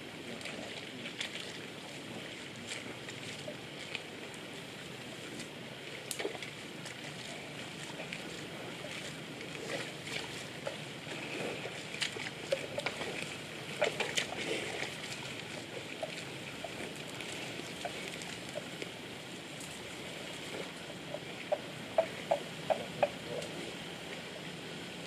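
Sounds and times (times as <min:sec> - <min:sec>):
mud and water sloshing: 0:00.0 - 0:25.0
steady outdoor hiss: 0:00.0 - 0:25.0
short splashes and clicks: 0:06.1 - 0:19.0.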